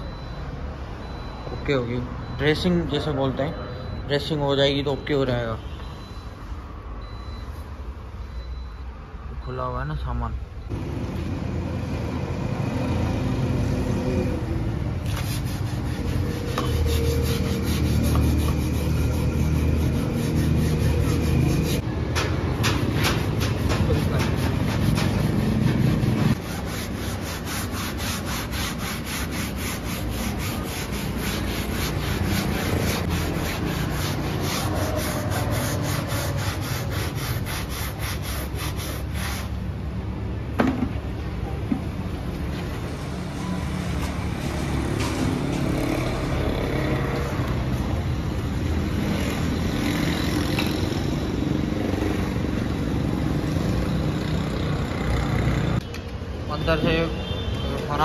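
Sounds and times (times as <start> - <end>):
street traffic: 0.0 - 58.0
scrub pad rubbing fabric: 15.1 - 21.8, 24.0 - 39.5.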